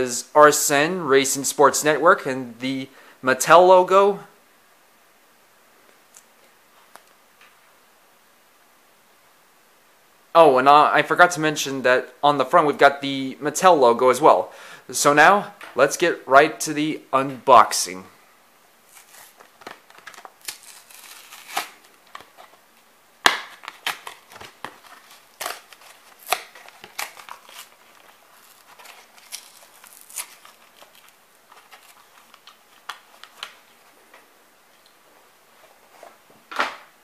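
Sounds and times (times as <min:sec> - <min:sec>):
plastic packaging crinkling and tearing: 0:18.9 - 0:22.6, 0:23.2 - 0:33.9.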